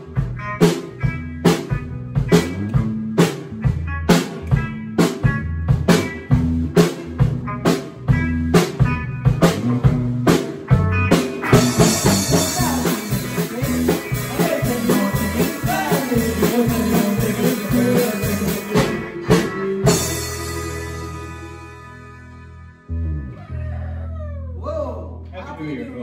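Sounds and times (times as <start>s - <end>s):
country band playing: 0.0s - 23.9s
man singing: 12.3s - 20.2s.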